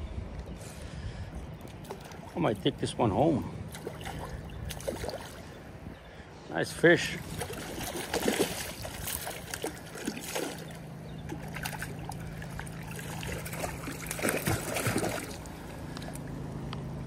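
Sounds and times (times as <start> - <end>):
moving water: 0.3 - 16.9
fish splashing at surface: 7.2 - 16.2.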